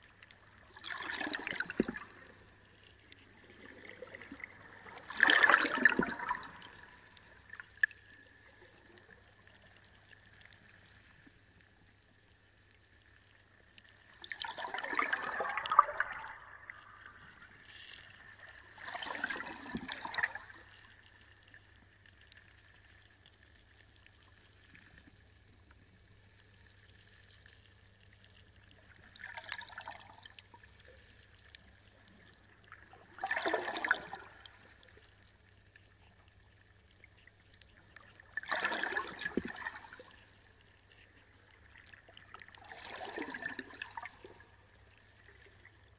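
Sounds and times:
water splashing and pouring: 0.4s - 9.0s, 14.0s - 20.9s, 33.0s - 35.0s, 37.9s - 45.6s.

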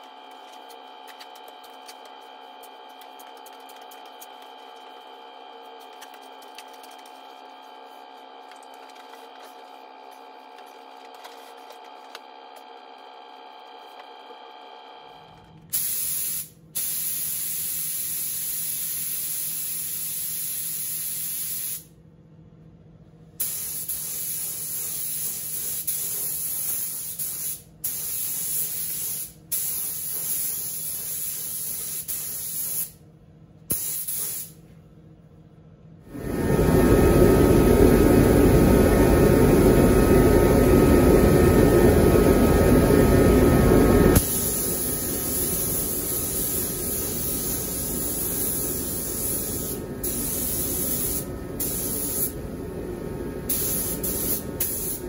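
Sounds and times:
spray gun hissing: 15.8s - 21.8s, 33.7s - 34.6s, 44.2s - 52.4s, 53.5s - 55.0s.

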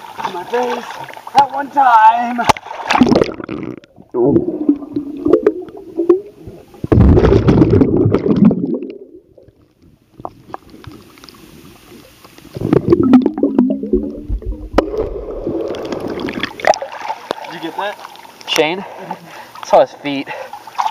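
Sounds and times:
underwater bubbles rushing: 2.6s - 17.5s.

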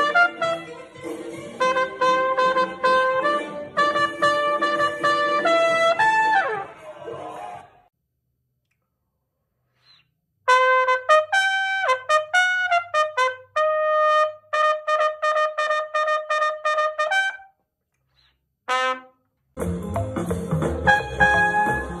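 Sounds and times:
solo trumpet playing: 0.0s - 6.7s, 10.5s - 17.5s, 18.7s - 19.2s, 20.8s - 22.0s.

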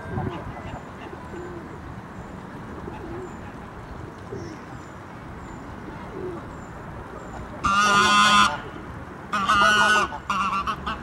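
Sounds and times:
outdoor background hiss: 0.0s - 11.0s
goose honking: 7.6s - 8.6s, 9.3s - 11.0s.

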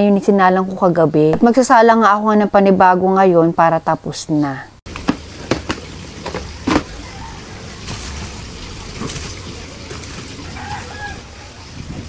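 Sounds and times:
light knocks of plastic container: 4.9s - 7.0s.

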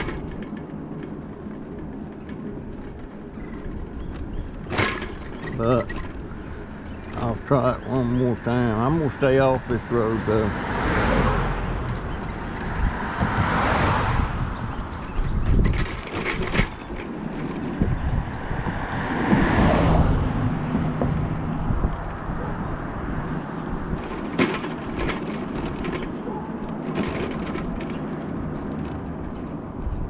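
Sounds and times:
mobility scooter rolling: 0.0s - 30.0s
wind on microphone: 8.2s - 25.9s, 29.3s - 30.0s.

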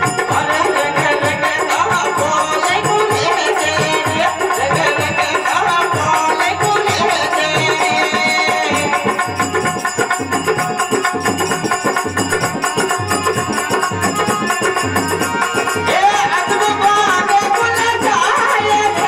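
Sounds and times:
man singing: 0.0s - 9.6s, 15.1s - 19.0s
harmonium held notes: 0.0s - 19.0s
steady percussion beat: 0.0s - 19.0s.

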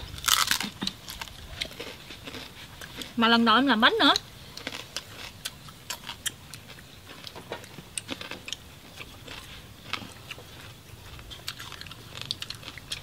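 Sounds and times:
chewing with crunches: 0.0s - 13.0s.

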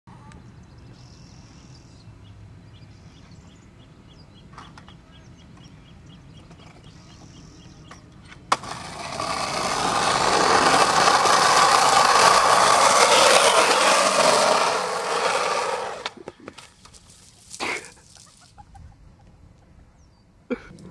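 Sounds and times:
skateboard clack: 7.9s - 16.6s
skateboard wheels rolling on asphalt: 8.3s - 17.8s.

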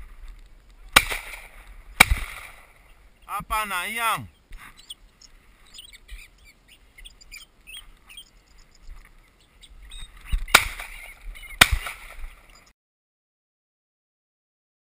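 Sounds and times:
sharp bangs: 0.9s - 2.8s, 10.4s - 12.4s
small birds chirping: 2.4s - 12.7s.

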